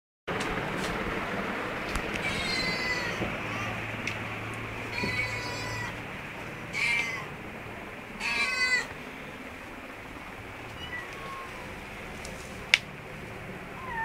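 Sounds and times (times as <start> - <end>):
cats meowing: 2.2 - 3.8, 4.5 - 6.0, 6.6 - 7.3, 8.2 - 9.0, 10.7 - 11.8, 13.8 - 14.0.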